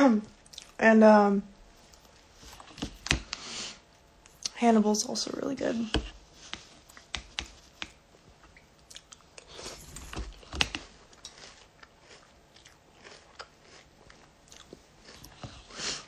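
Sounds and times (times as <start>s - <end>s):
person chewing cereal: 6.3s - 16.0s.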